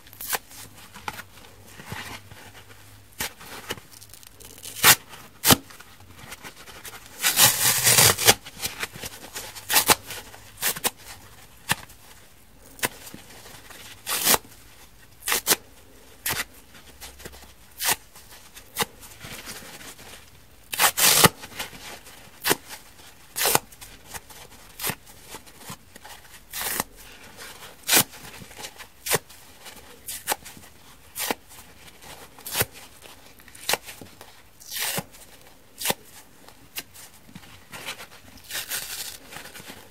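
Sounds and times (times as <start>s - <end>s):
foam tearing by hand: 4.0s - 5.6s, 7.2s - 8.4s, 14.0s - 14.4s, 20.7s - 21.4s, 34.6s - 35.1s, 38.4s - 39.3s.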